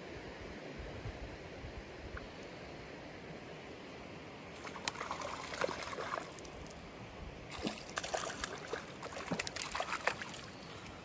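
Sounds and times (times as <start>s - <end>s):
creek rushing: 4.5s - 11.0s
fish splashing in water: 4.6s - 6.8s, 7.5s - 10.9s.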